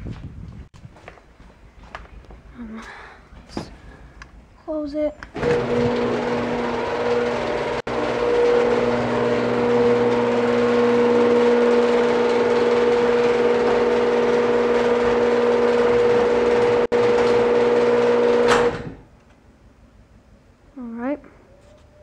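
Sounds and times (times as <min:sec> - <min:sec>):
garage door opener motor hum: 0:05.3 - 0:19.1.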